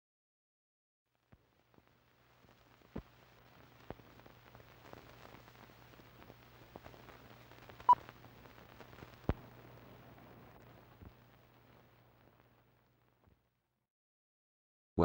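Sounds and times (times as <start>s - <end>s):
film hiss and crackle: 1.1s - 13.6s
clicks and pops: 8.9s - 9.4s.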